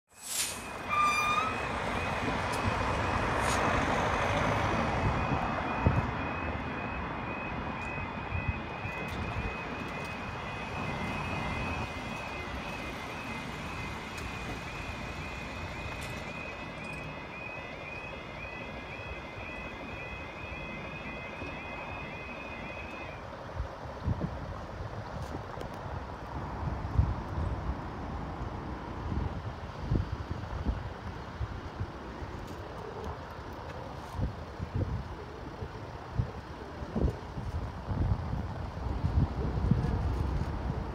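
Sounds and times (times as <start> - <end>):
traffic noise: 0.1 - 40.9
level crossing alarm two-tone warble: 0.5 - 23.2.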